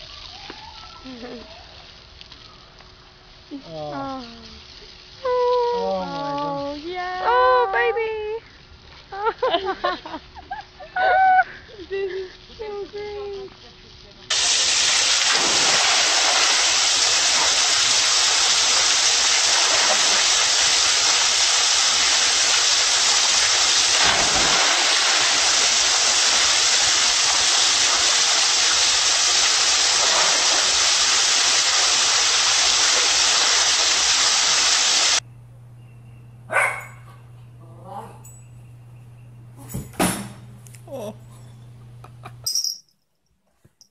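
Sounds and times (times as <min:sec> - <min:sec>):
water rushing down waterslide: 0:14.3 - 0:35.2
water splashing into pool: 0:14.3 - 0:35.2.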